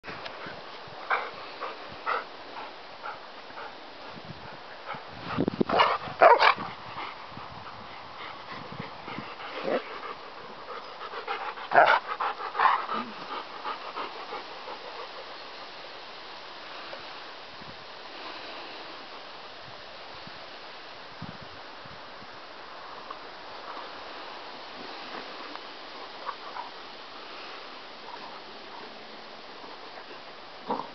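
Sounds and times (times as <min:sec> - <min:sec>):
dogs panting: 0:00.3 - 0:15.7
dogs barking outbursts: 0:05.7 - 0:06.6, 0:11.7 - 0:13.2.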